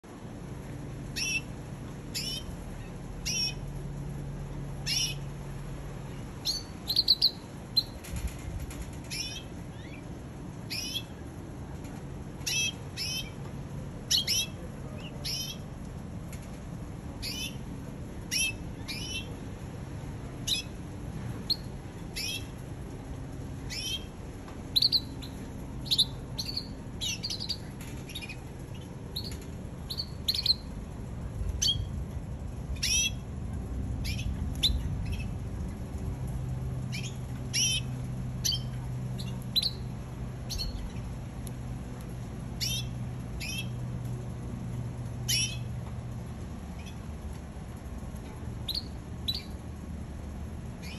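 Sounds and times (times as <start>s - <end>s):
low background hum: 0.0s - 50.9s
canary chirping: 1.2s - 1.5s, 2.1s - 2.5s, 3.2s - 3.6s, 4.8s - 5.2s, 6.4s - 8.0s, 10.7s - 11.1s, 12.4s - 13.3s, 14.1s - 14.6s, 15.2s - 15.6s, 17.2s - 17.6s, 18.3s - 19.3s, 21.5s - 22.5s, 23.7s - 24.1s, 24.7s - 30.7s, 31.6s - 31.9s, 32.8s - 33.2s, 34.0s - 35.4s, 36.9s - 39.9s, 40.5s - 41.0s, 42.6s - 43.8s, 48.7s - 49.6s.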